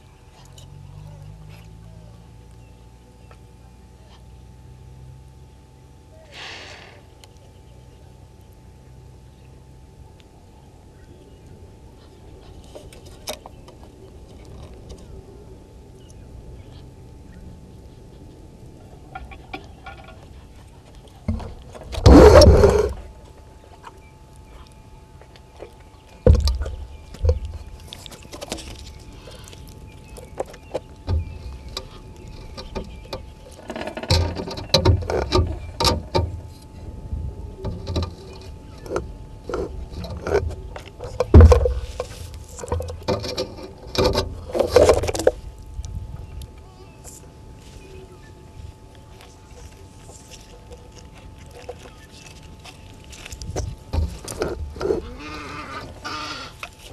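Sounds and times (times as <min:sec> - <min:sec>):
bumps and scrapes on camera housing: 0:19.1 - 0:23.1, 0:26.2 - 0:36.8, 0:37.7 - 0:45.5, 0:49.2 - 0:56.9.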